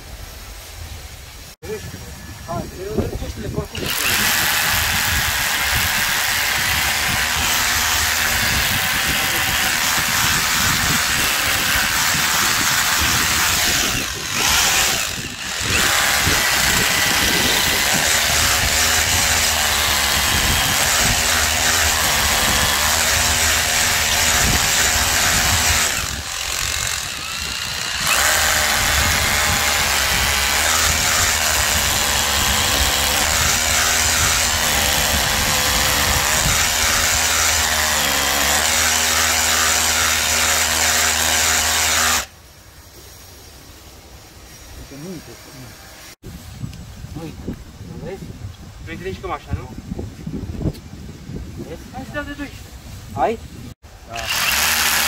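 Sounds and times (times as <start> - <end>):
rotary hammer drilling concrete: 3.5 - 42.3, 54.0 - 55.0.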